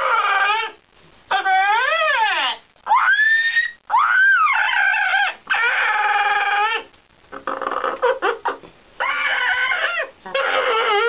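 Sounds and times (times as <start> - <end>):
parrot whining calls: 0.0 - 11.0.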